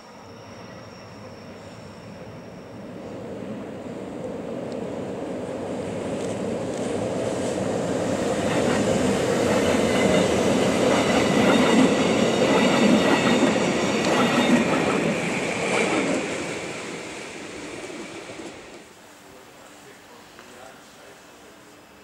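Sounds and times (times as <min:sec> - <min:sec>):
faint high wheel squeal: 0:00.0 - 0:03.4.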